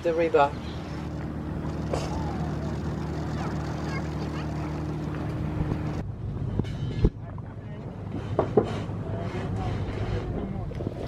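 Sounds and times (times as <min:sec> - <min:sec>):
boat engine running: 0:00.0 - 0:06.0, 0:08.8 - 0:11.0
water: 0:00.0 - 0:06.0, 0:07.2 - 0:11.0
wind: 0:00.0 - 0:11.0.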